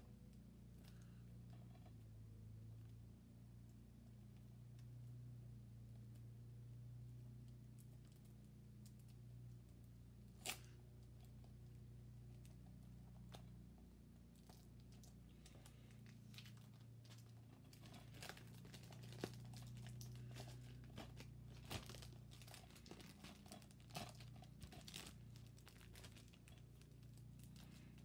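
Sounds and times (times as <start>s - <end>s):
low steady hum: 0.0s - 28.0s
plastic wrap crinkling and tearing: 10.3s - 10.7s, 14.4s - 28.0s.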